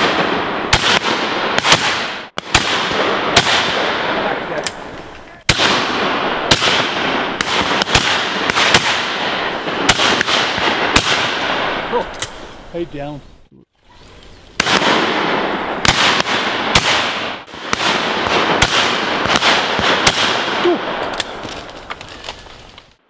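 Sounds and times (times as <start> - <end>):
gunshot echoes: 0.0 - 4.6, 5.5 - 12.4, 14.6 - 21.4
shotguns firing: 0.0 - 12.5, 14.6 - 22.2.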